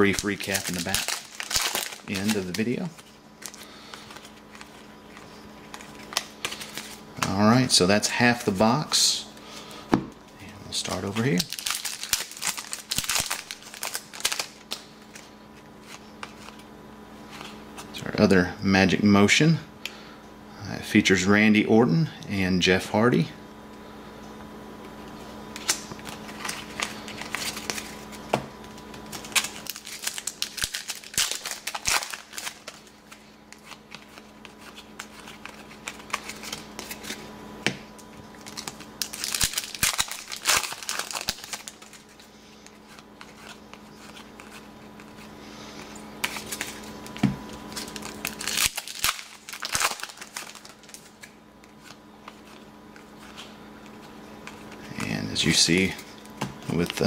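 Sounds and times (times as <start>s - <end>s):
wrapper crinkling: 0.0s - 7.0s, 10.7s - 16.6s, 25.6s - 37.2s, 38.3s - 45.3s, 46.2s - 57.0s
cards rustling and clicking: 0.0s - 7.6s, 10.4s - 16.7s, 17.3s - 18.0s, 25.5s - 57.0s
faint steady hum: 0.0s - 57.0s.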